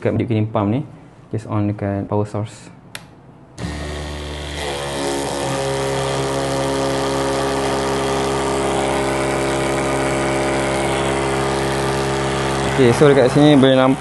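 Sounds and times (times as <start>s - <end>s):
electric pump humming: 3.5s - 14.0s.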